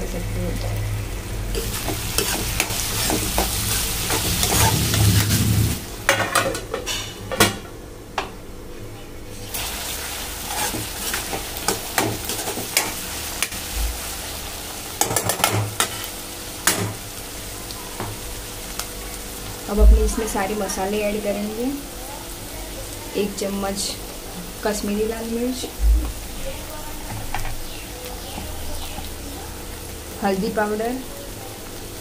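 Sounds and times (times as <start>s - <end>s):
masala sizzling in pan: 0.0s - 7.8s, 9.1s - 32.0s
metal spoon scraping pan: 1.5s - 5.4s, 10.4s - 13.0s.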